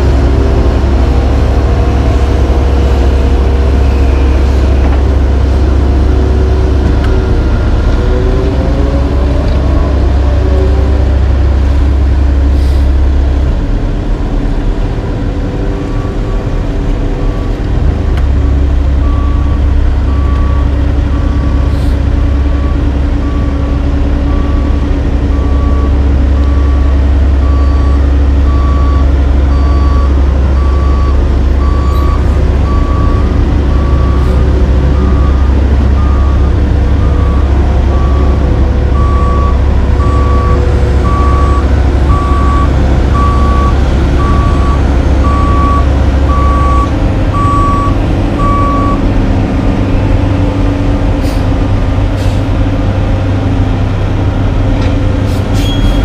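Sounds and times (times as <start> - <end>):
heavy diesel engines running: 0.0 - 56.0
backup alarm beeping: 24.3 - 49.0.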